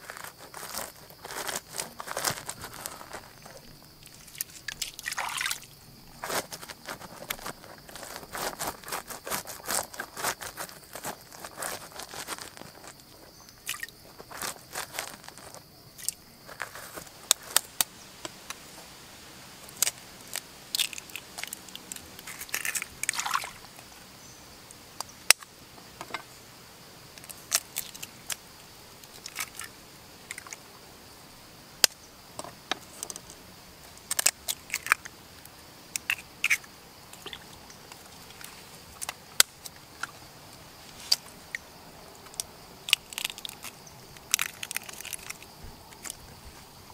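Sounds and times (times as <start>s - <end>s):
eggshells tapping and cracking: 42.3s - 46.2s.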